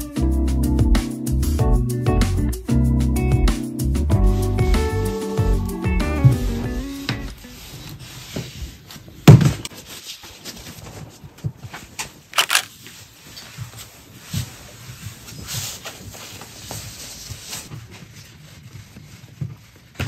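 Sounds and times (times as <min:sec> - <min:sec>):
fabric rustling: 0:06.2 - 0:20.0.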